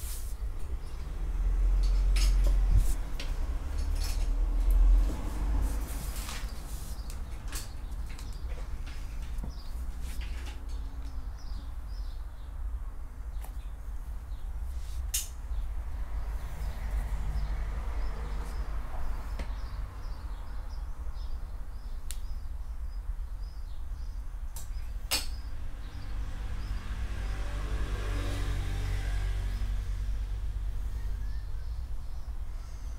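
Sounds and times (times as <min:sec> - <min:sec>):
faint bird chirps: 0:30.8 - 0:32.9.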